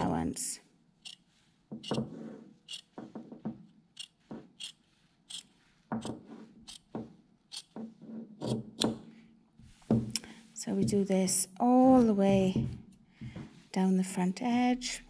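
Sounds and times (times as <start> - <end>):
shears snipping fabric: 2.6 - 3.0, 3.9 - 6.9.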